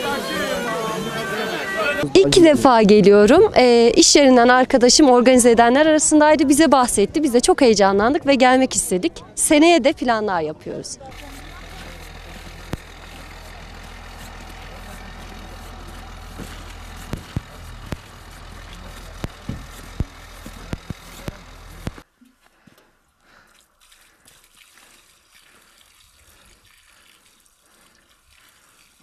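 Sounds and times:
footsteps on slushy road: 11.0 - 28.8
water trickling from pipe: 11.1 - 21.9, 23.2 - 29.0
outdoor hum and hiss: 11.1 - 23.3.

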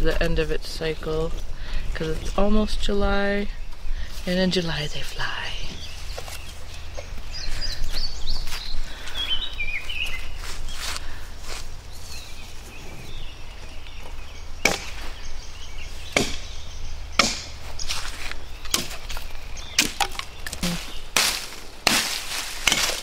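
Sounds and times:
axe chopping wood: 14.6 - 15.0, 16.1 - 16.5, 17.2 - 17.6, 18.7 - 19.1, 19.8 - 20.3, 21.2 - 23.0.

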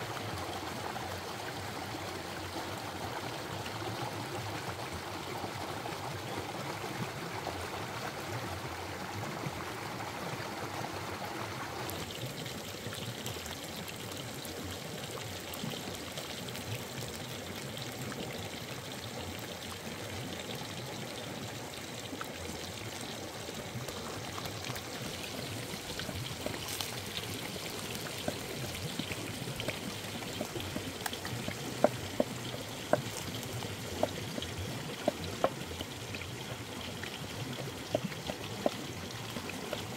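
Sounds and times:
water rushing over rocks: 21.0 - 39.9.

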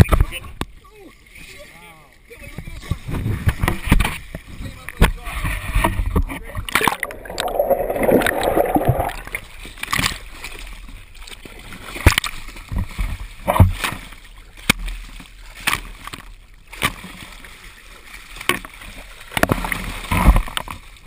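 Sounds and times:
water splashing and gurgling: 2.8 - 21.0
water bubbling rush: 6.4 - 9.6.

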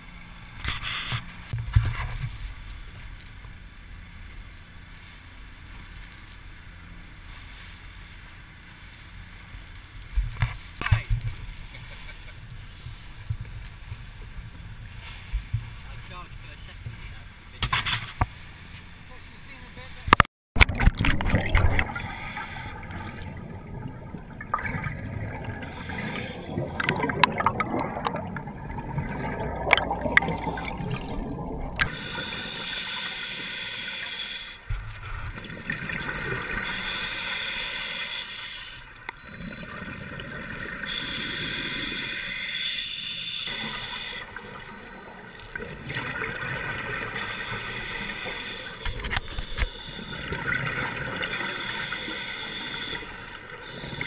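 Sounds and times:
bubbles gurgling: 20.6 - 32.0, 35.2 - 36.7, 39.2 - 40.9, 44.3 - 47.4, 49.9 - 51.7
scuba regulator hissing: 31.8 - 34.6, 36.6 - 38.8, 40.9 - 44.3, 47.1 - 50.4, 51.3 - 54.0.

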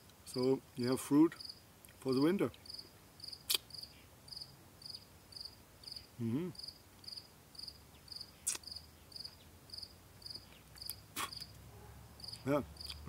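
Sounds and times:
cricket chirping: 1.4 - 13.0
man humming mmm: 6.2 - 6.6.

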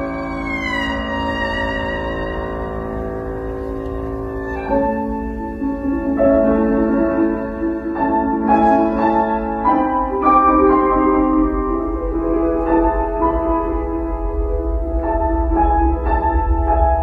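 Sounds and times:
erhu playing slow melody: 0.0 - 5.7
piano accompaniment: 0.0 - 17.0.

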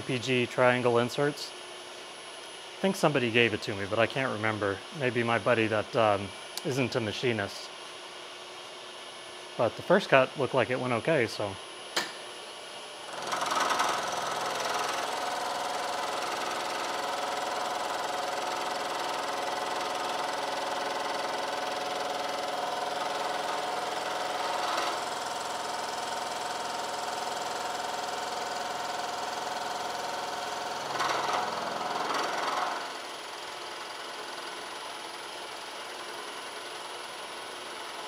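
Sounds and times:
harsh cutting rattle: 13.1 - 34.9
milling machine cutting metal: 13.1 - 38.0.

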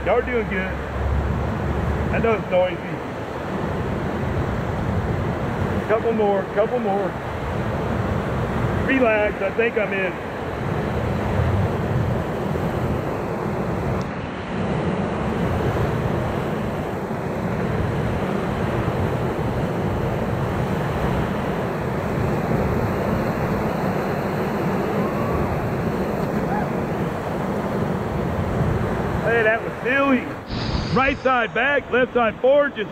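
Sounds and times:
rapids rushing: 21.2 - 32.9.

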